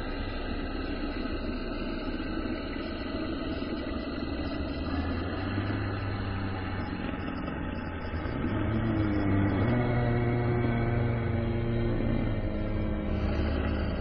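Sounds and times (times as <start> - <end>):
low droning ambient tones: 0.0 - 14.0.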